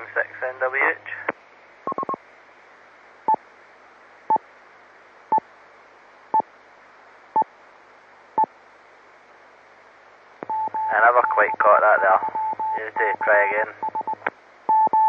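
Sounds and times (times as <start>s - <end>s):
radio static hiss: 0.0s - 15.0s
short beeps: 10.5s - 11.6s, 12.2s - 15.0s.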